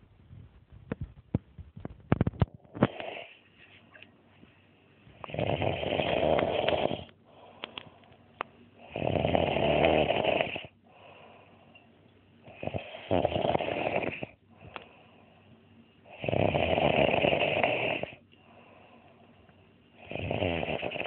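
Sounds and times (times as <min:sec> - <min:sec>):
man snoring: 0:05.2 - 0:07.1, 0:08.8 - 0:10.8, 0:12.5 - 0:14.4, 0:16.1 - 0:18.2, 0:20.0 - 0:21.0.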